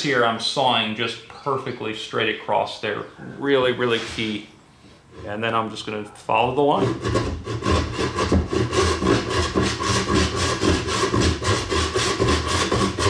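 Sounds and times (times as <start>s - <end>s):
hand saw rasping strokes: 6.8s - 13.0s.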